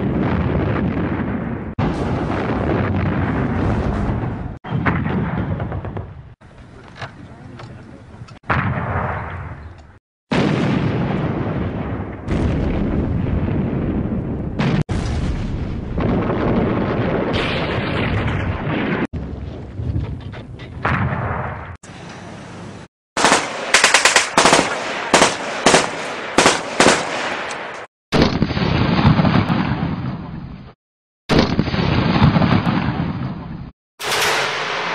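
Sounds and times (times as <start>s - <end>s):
gunfire and explosions: 0.0s - 6.4s, 8.3s - 21.8s, 23.2s - 34.9s
machine-gun fire: 23.2s - 29.8s.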